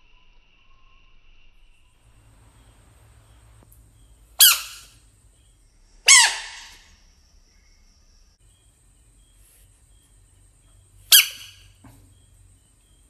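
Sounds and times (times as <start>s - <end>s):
frog squealing cries: 4.4s - 4.9s, 6.1s - 6.8s, 11.1s - 11.6s.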